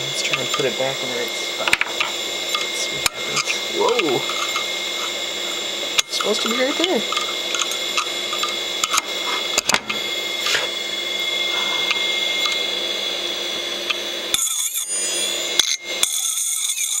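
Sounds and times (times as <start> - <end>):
hard drive whine: 0.0 - 17.0
metal scraping spinning platter: 0.1 - 10.8.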